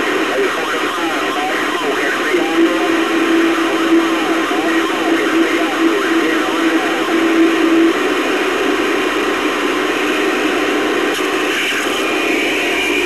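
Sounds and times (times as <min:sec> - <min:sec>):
radio static hiss: 0:00.0 - 0:13.0
steady tone: 0:01.1 - 0:10.6.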